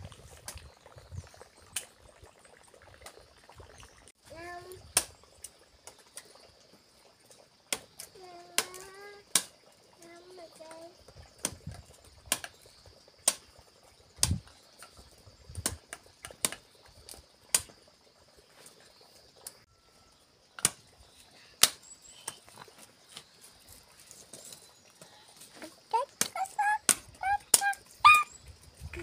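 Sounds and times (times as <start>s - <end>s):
machete chopping stems: 21.6s - 21.8s.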